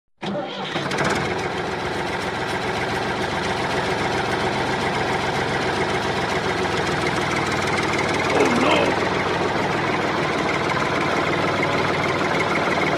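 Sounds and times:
model tractor motor knocking: 9.0s - 12.9s.

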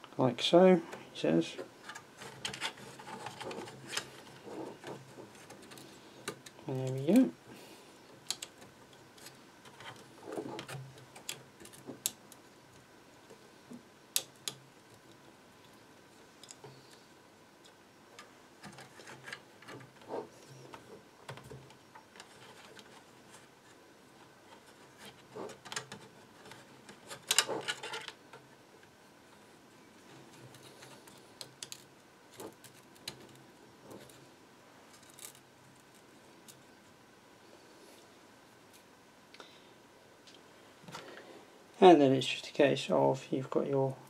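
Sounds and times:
hands handling plastic parts: 1.8s - 7.2s, 16.4s - 28.5s.

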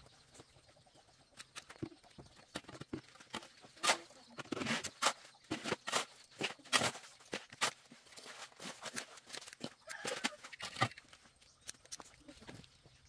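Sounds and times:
shovel scraping wet sand mix: 3.3s - 10.9s.

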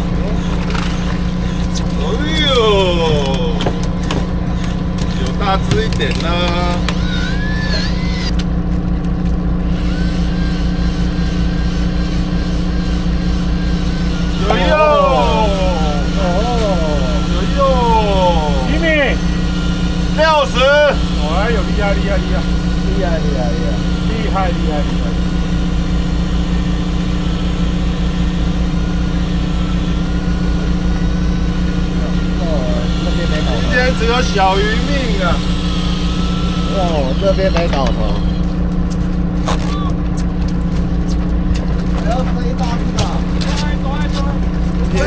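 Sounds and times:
boat engine pulsing hum: 0.0s - 45.0s
faint wavering whine: 6.4s - 8.4s, 9.6s - 39.8s.

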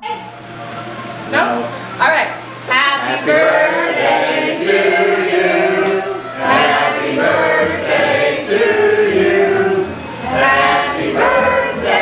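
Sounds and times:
choir singing long notes: 2.9s - 12.0s.

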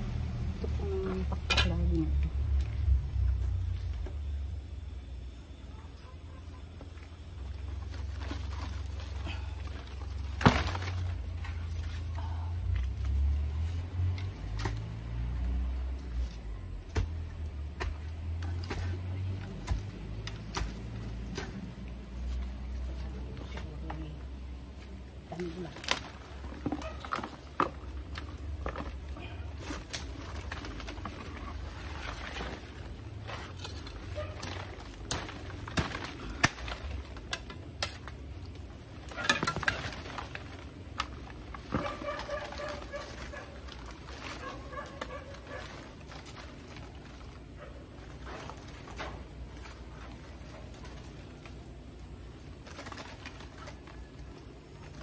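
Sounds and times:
low steady rumble: 0.0s - 55.0s
fern leaves rustling: 7.2s - 16.7s, 18.2s - 55.0s
hands knocking and rustling plant: 39.2s - 51.7s.

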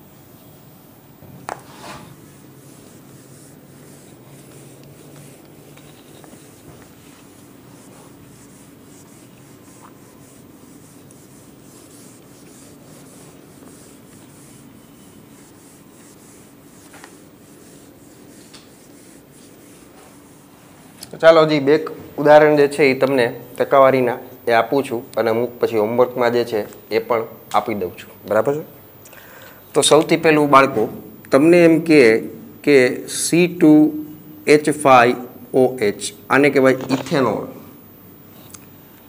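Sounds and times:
cloth rubbing on whiteboard: 1.5s - 21.0s.

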